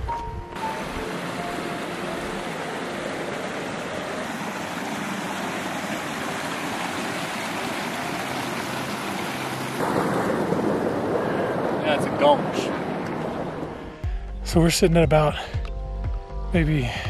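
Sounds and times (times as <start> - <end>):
stream running over rocks: 0.6 - 13.8.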